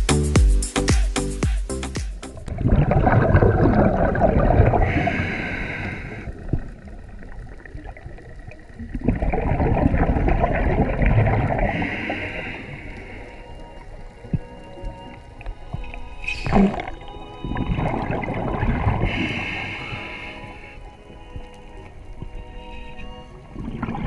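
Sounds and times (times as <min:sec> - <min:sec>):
gurgling exhaled bubbles underwater: 0:02.5 - 0:13.2, 0:15.7 - 0:20.2, 0:23.5 - 0:24.0.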